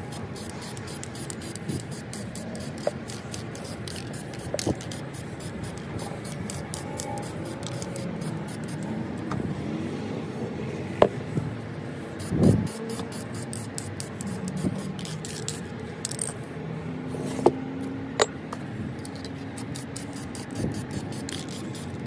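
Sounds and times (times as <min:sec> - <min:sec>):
aerosol spray can hissing: 0:00.0 - 0:08.8, 0:12.2 - 0:15.6.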